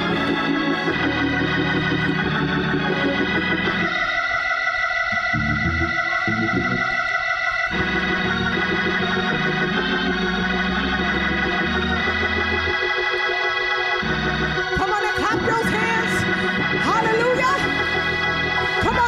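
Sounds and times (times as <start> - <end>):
organ playing held chords: 0.0 - 19.0
woman singing into a microphone: 14.8 - 17.8, 18.8 - 19.0.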